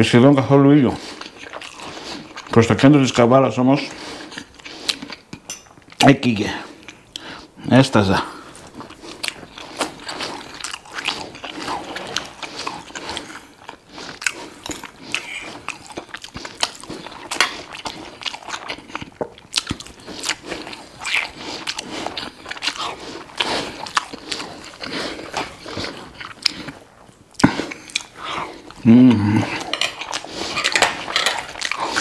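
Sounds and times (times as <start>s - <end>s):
chewing with wet mouth smacks: 1.0s - 2.7s, 8.5s - 28.8s, 29.5s - 32.0s.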